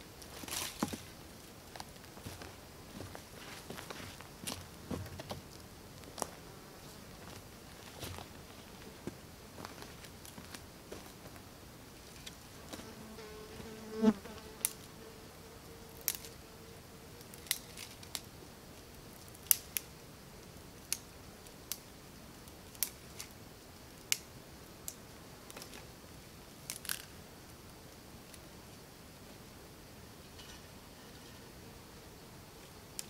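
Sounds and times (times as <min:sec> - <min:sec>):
fly buzzing: 0:12.7 - 0:17.4.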